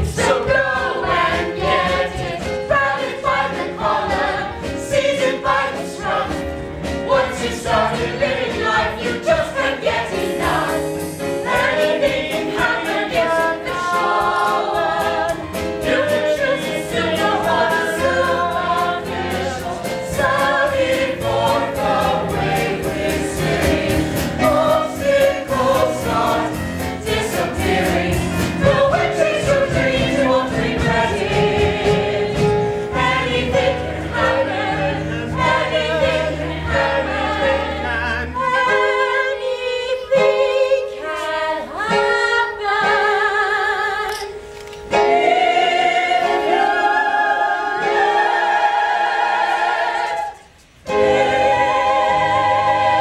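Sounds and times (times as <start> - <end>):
instrumental accompaniment with beat: 0.0 - 37.3
cast singing together: 0.0 - 44.3, 44.9 - 53.0.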